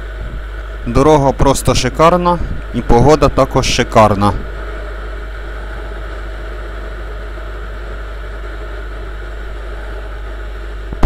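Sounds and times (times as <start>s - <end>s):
wind rumble on microphone: 0.0s - 0.6s, 2.4s - 2.8s.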